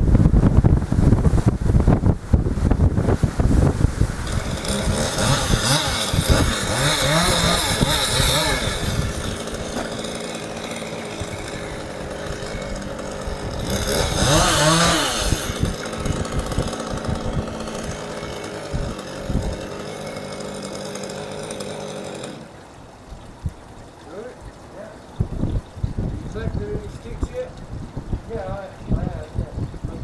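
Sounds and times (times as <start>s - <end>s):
chainsaw running and revving: 3.4s - 22.6s.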